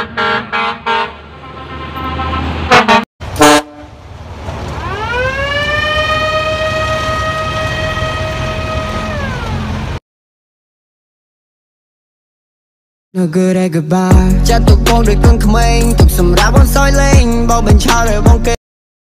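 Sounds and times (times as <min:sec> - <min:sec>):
truck horn toots and blasts: 0:00.0 - 0:04.0.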